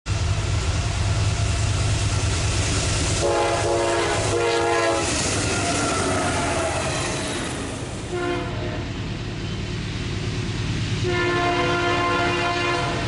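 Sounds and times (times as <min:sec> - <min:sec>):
diesel locomotives passing: 0:00.1 - 0:13.0
train air horn blasts: 0:03.2 - 0:05.2, 0:08.1 - 0:08.8, 0:11.0 - 0:13.0.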